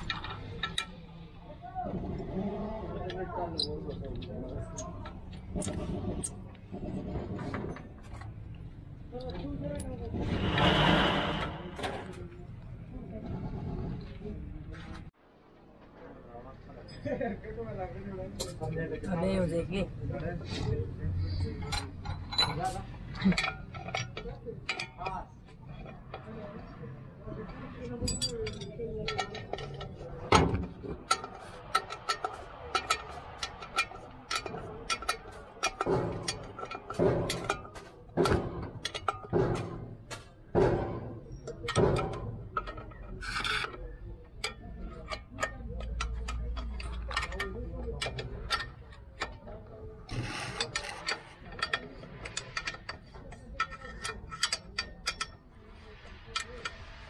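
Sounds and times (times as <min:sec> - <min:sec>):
spanners clicking on metal nuts: 0:00.0 - 0:01.3, 0:21.2 - 0:26.7, 0:27.4 - 0:57.0
metal scraping strokes: 0:10.0 - 0:12.2, 0:50.1 - 0:52.9
wrench clicking on metal nut: 0:28.0 - 0:39.7, 0:50.1 - 0:55.4.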